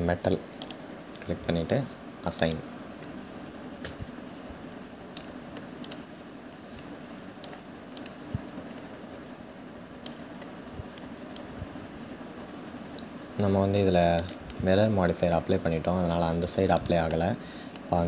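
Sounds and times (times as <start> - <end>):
low background hum: 0.0 - 18.0
computer keyboard and mouse clicks: 0.6 - 1.3, 3.8 - 6.1, 6.7 - 9.4, 10.0 - 11.5, 14.1 - 14.6, 16.7 - 17.9.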